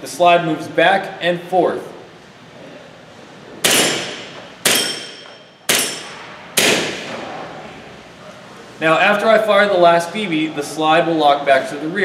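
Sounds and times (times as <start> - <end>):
airsoft pistol shots: 3.6 - 7.1.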